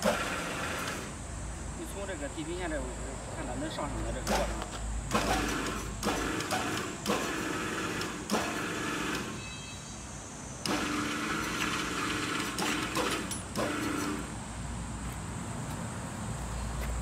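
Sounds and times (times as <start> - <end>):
electric hoist motor running: 0.0 - 1.2, 4.2 - 9.6, 10.6 - 14.4.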